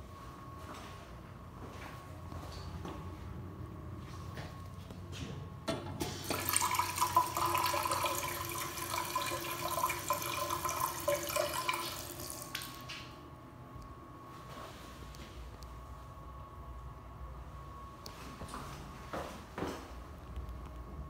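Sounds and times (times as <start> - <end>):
faucet water splashing in basin: 6.2 - 13.0.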